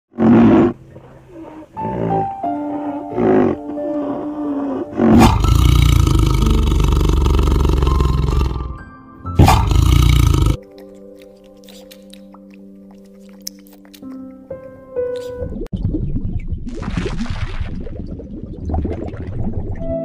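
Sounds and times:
tiger roaring and growling: 0.1s - 8.8s, 9.4s - 10.6s
background music: 0.1s - 15.7s.

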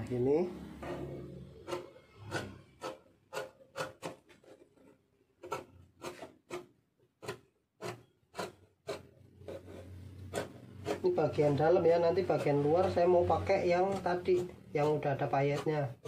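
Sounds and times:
scissors snipping fabric: 1.0s - 16.0s.

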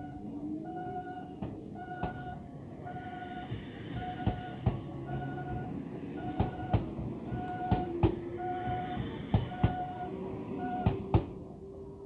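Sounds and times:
level-crossing alarm bell ringing: 0.0s - 6.7s
train rumbling: 0.0s - 12.0s
train wheels knocking over rail joints: 4.0s - 4.9s, 6.2s - 10.0s.

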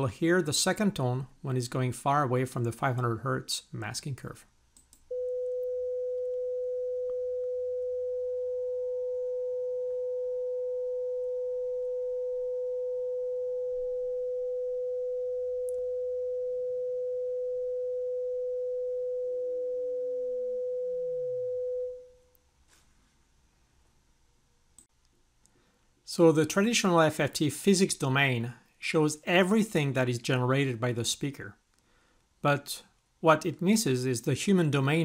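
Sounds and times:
steady sine test tone: 5.1s - 22.3s.

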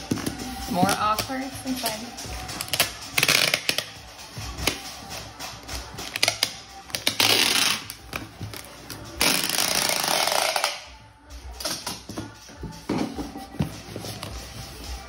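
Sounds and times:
packing tape screeching off roll: 6.1s - 8.0s.

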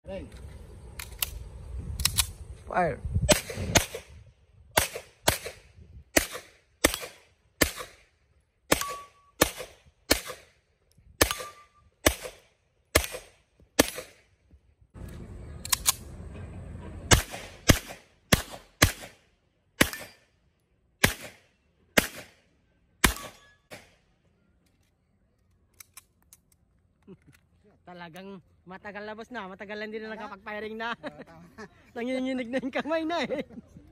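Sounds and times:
pistol shots: 4.8s - 8.0s, 8.7s - 10.5s, 11.2s - 14.2s, 17.1s - 19.2s, 19.8s - 20.2s, 21.0s - 22.4s, 23.0s - 24.0s.

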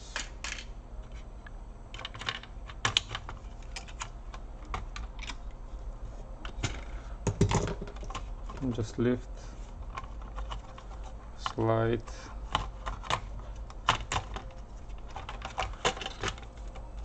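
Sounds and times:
clicks of laptop parts handled: 12.5s - 16.9s.

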